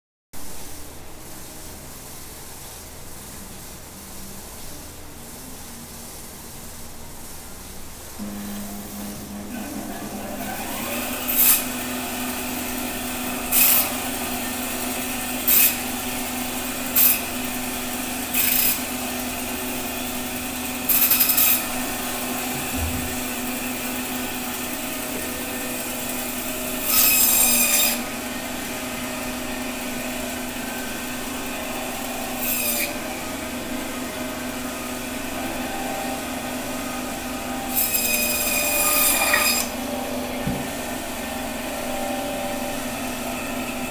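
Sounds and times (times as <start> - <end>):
band saw running: 8.1 - 43.9
saw blade cutting through fish: 26.8 - 28.1, 37.7 - 39.8.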